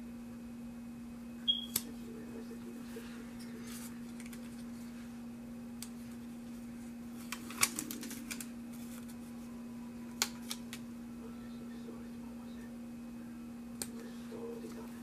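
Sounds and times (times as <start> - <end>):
faint steady hum: 0.0 - 15.0
paper rustling: 2.8 - 5.1, 5.9 - 9.5.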